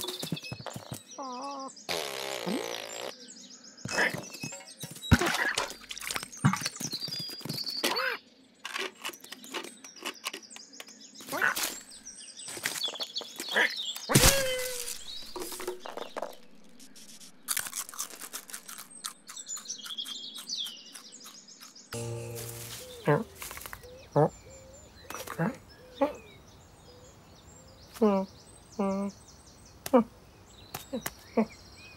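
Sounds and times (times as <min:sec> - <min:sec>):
cartoon birds chirping: 0:00.0 - 0:05.9, 0:17.7 - 0:26.4
short falling tone: 0:22.0 - 0:23.0.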